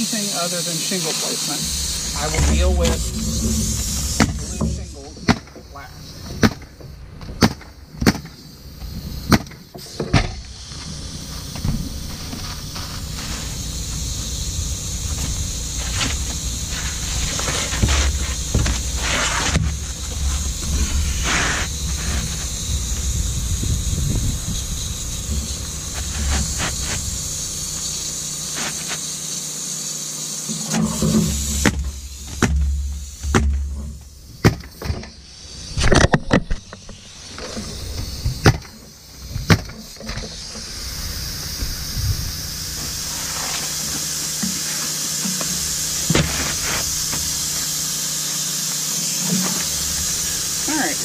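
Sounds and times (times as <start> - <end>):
steady background hiss: 0.0 - 51.0
roof shingles scraping: 1.2 - 7.7, 10.8 - 23.4, 24.2 - 29.1, 42.8 - 47.7.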